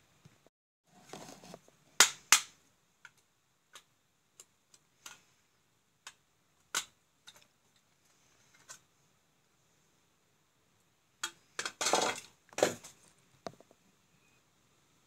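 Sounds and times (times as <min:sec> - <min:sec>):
plastic and metal parts clicking: 0:06.0 - 0:07.9.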